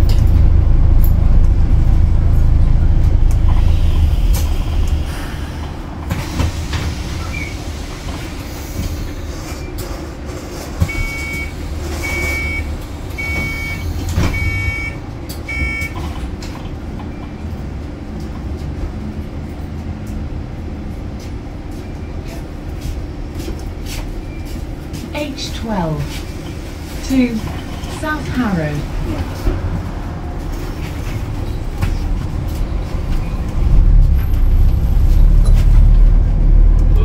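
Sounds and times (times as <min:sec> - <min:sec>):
bus engine low hum: 0:00.0 - 0:37.0
electronic door warning beeps: 0:10.9 - 0:16.0.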